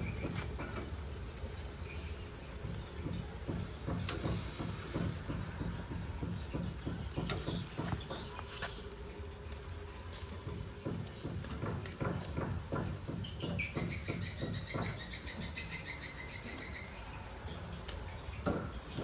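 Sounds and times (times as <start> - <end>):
tongs knocking on grill grate: 2.6 - 8.6, 10.1 - 16.8.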